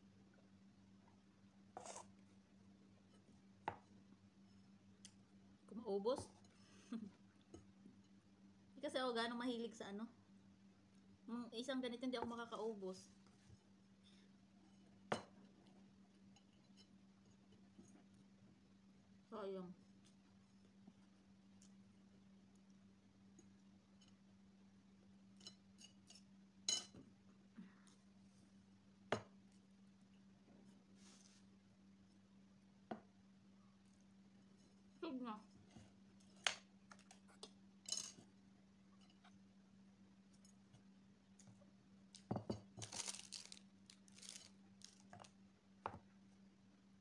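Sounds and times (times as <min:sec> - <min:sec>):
faint steady hum: 0:00.0 - 0:47.0
plastic wrapping crinkling: 0:42.8 - 0:45.4.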